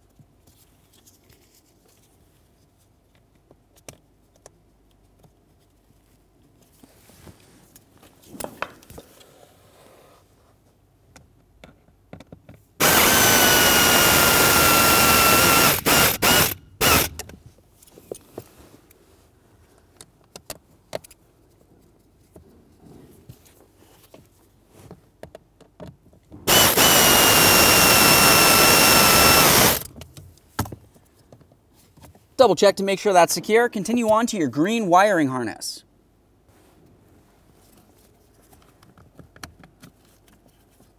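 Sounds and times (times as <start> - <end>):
electric ratchet whining: 12.8 - 17.2, 26.5 - 29.9.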